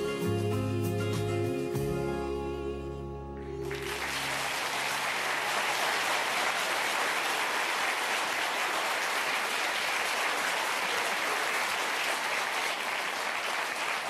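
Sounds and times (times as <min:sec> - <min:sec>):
held song chord: 0:00.0 - 0:05.1
studio audience applause: 0:03.6 - 0:14.0.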